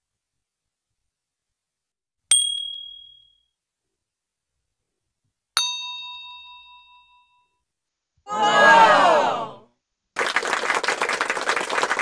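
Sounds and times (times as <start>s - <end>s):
high bell ding: 2.3s - 3.4s, 5.6s - 7.6s
lower ringing bell ding: 2.3s - 3.4s, 5.6s - 7.6s.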